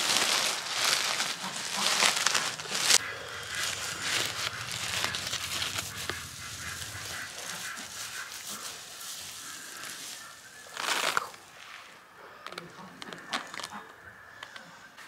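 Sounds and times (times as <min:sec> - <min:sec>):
hands rustling grains in a sack: 0:00.0 - 0:12.0.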